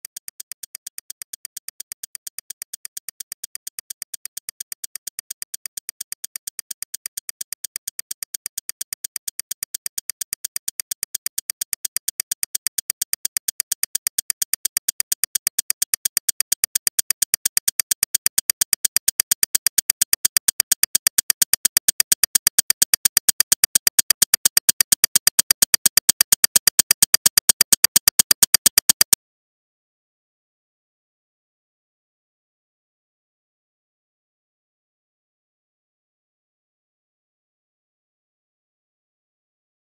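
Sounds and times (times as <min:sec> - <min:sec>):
rapid synthetic clicks: 0:00.0 - 0:29.2.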